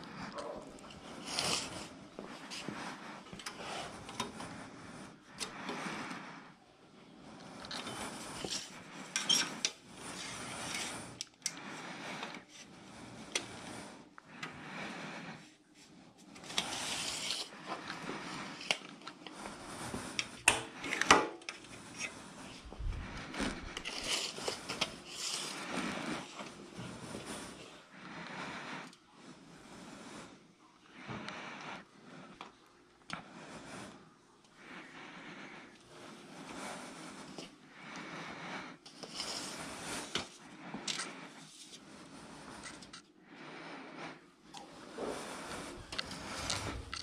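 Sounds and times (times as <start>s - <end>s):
handling rustling and shuffling: 16.2s - 27.3s.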